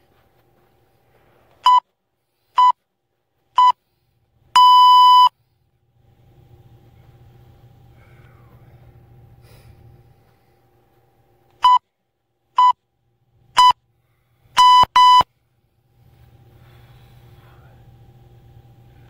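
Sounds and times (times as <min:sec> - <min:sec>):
electronic timer beeps: 0:01.6 - 0:01.8, 0:02.6 - 0:02.8, 0:03.6 - 0:03.8, 0:04.6 - 0:05.3, 0:11.6 - 0:11.8, 0:12.6 - 0:12.8, 0:13.6 - 0:13.8, 0:14.6 - 0:15.3.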